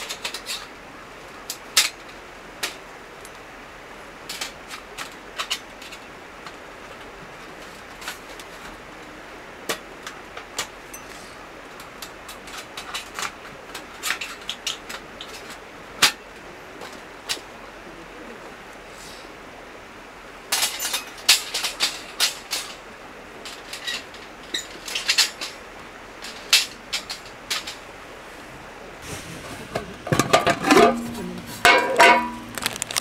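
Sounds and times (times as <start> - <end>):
metal parts clinking and tapping: 0.0 - 0.7, 4.3 - 6.6, 9.7 - 16.2, 20.5 - 22.8, 23.4 - 27.8, 30.1 - 33.0
metal lid clattering: 29.7 - 32.7.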